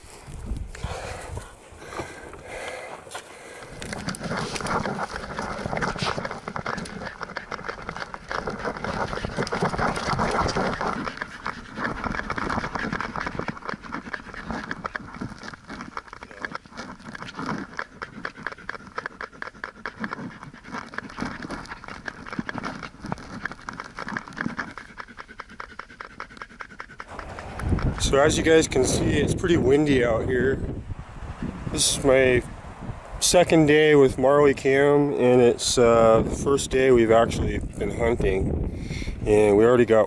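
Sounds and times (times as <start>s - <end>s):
dog panting: 0.7s - 30.0s.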